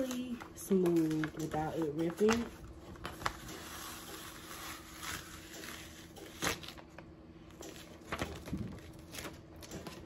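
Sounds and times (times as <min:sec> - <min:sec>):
paper peeling off a mat: 0:03.1 - 0:06.9.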